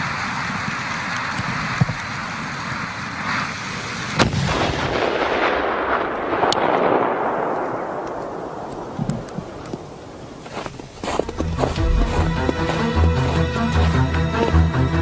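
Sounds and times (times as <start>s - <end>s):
firecracker fuse hissing: 0.0s - 4.4s
rush of noise with cracks: 0.0s - 12.8s
firecracker bang: 4.2s - 8.0s.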